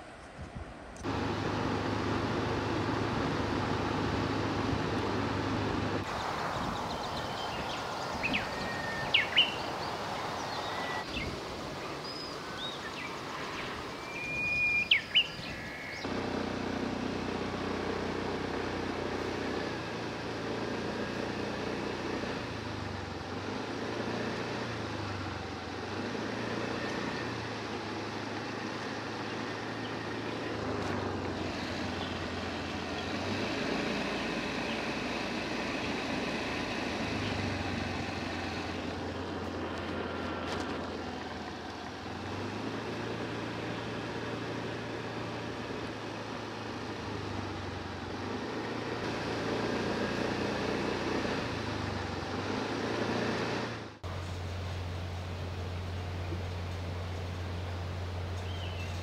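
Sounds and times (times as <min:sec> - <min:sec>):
rumble and hum of machinery: 0:00.2 - 0:11.8
short high bird chirps: 0:07.0 - 0:11.3, 0:14.0 - 0:16.0.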